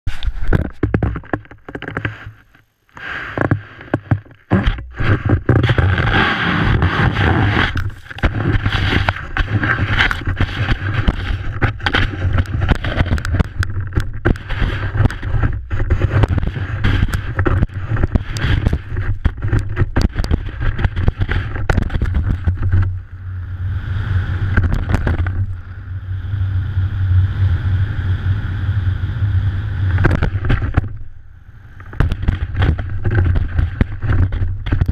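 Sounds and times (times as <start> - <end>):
wind rumbling on microphone: 0.0 - 34.9
skis scraping over snow: 3.0 - 22.9.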